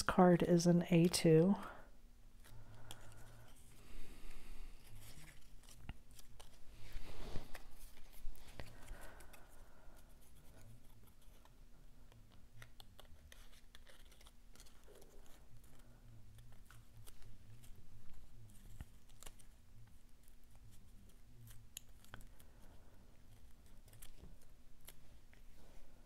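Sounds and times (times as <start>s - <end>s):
cardstock rustling and crinkling: 4.8s - 9.5s, 12.2s - 25.5s
small paper clicks: 5.0s - 6.6s, 10.5s - 22.7s, 23.3s - 25.0s.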